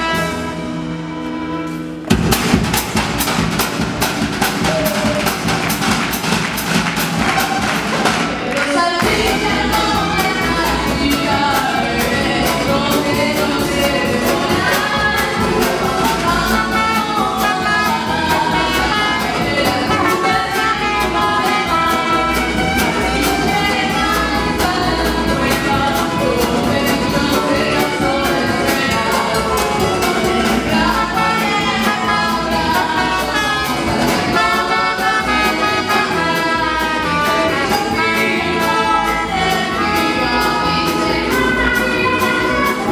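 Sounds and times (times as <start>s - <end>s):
drum kit: 0.0s - 42.9s
trumpet: 0.0s - 42.9s
upright bass: 0.0s - 42.9s
person singing: 8.4s - 42.9s
violin: 8.7s - 42.9s.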